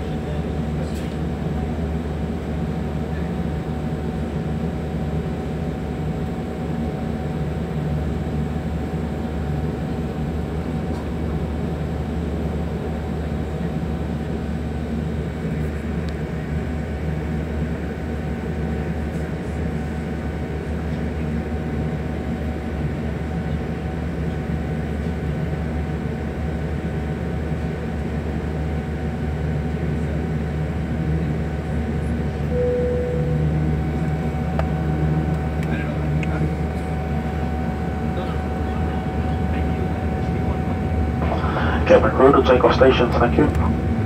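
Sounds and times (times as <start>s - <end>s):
jet engines humming: 0.0s - 44.0s
faint steady whine: 32.4s - 44.0s
short single tone: 32.5s - 33.8s.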